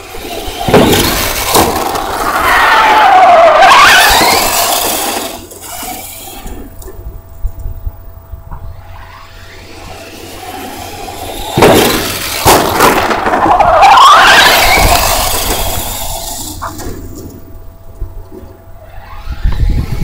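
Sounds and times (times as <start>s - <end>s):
electric motor whine: 0.0s - 20.0s
tyre and ground noise: 0.0s - 20.0s.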